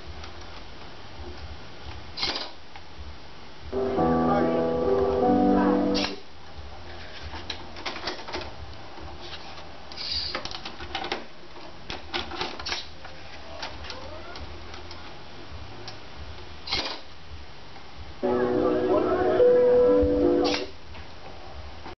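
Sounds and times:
low steady hum: 0:03.0 - 0:07.4.

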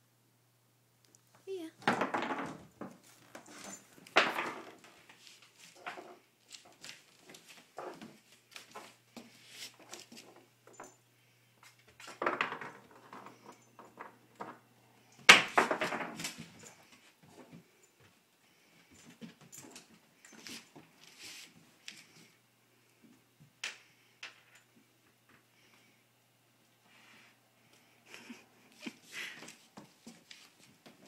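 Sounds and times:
puppy playing with biscuit on wooden floor: 0:01.8 - 0:14.6, 0:15.2 - 0:17.6.

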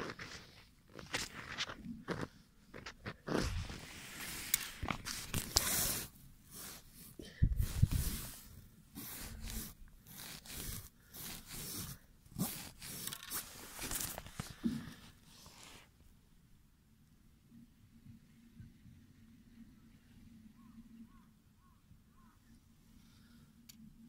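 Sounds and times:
crunching ice chips and snow: 0:00.0 - 0:06.0
rustling and handling bumps: 0:10.2 - 0:15.2.

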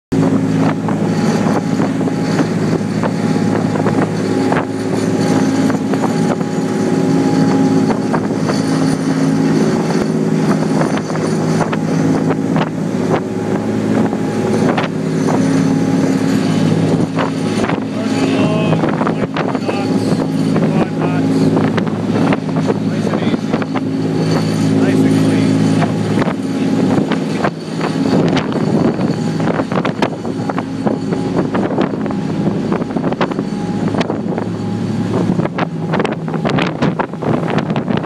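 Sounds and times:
boat diesel engines humming: 0:00.1 - 0:38.0
churning wake rushing: 0:00.1 - 0:38.0
wind buffeting microphone: 0:00.1 - 0:38.0.

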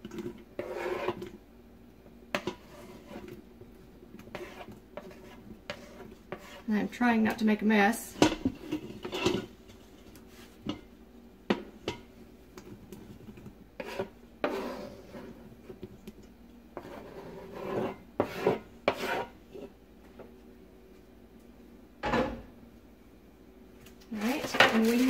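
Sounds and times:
metal spatula scraping cutting board: 0:00.0 - 0:01.3, 0:02.3 - 0:03.4, 0:04.2 - 0:06.9, 0:08.2 - 0:10.8, 0:13.8 - 0:15.4, 0:16.8 - 0:19.8, 0:24.2 - 0:25.0.

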